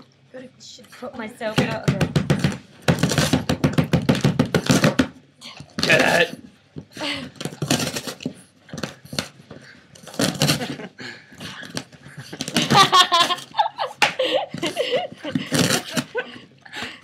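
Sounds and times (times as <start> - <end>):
dog tearing cardboard: 2.2 - 5.2, 5.8 - 6.4, 7.4 - 10.9, 11.6 - 13.5, 15.3 - 16.2
person laughing: 10.4 - 17.0.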